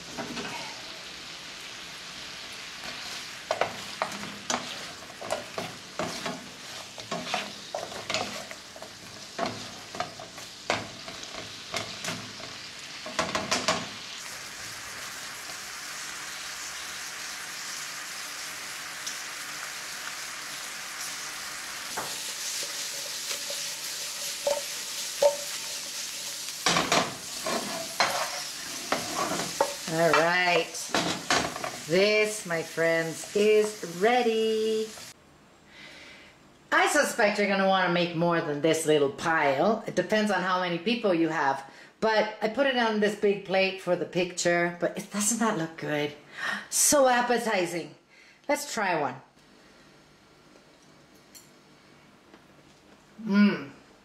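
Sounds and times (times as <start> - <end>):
glaze sizzling in a skillet: 0.0 - 35.2
spatula scraping a pan: 2.8 - 13.5, 21.9 - 32.0.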